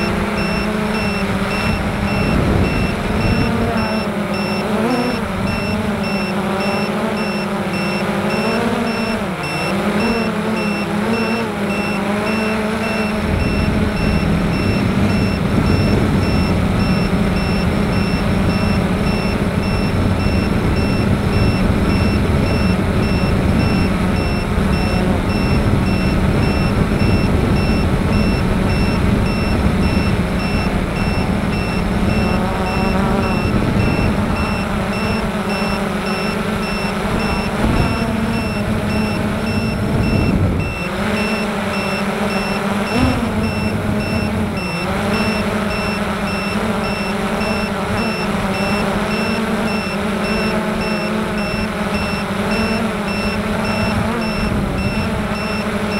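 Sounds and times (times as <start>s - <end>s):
model aircraft motor whine: 0.0s - 55.9s
wind rushing across microphone: 1.2s - 3.8s, 13.2s - 18.5s, 19.4s - 32.2s, 33.4s - 34.9s, 39.6s - 40.8s.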